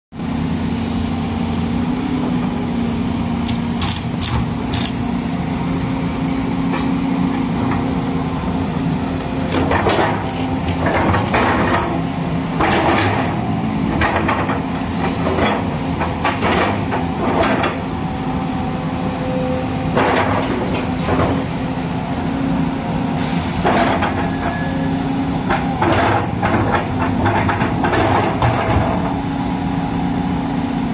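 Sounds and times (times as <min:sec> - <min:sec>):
excavator diesel engine running: 0:00.2 - 0:30.9
metal clanks and knocks: 0:12.6 - 0:17.8, 0:19.9 - 0:21.5, 0:25.4 - 0:29.2.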